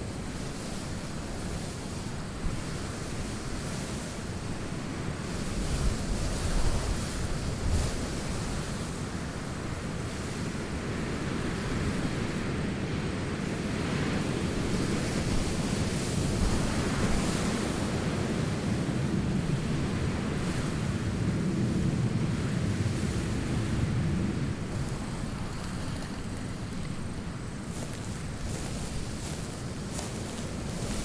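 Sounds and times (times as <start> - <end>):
wind blowing: 14.2 - 31.0.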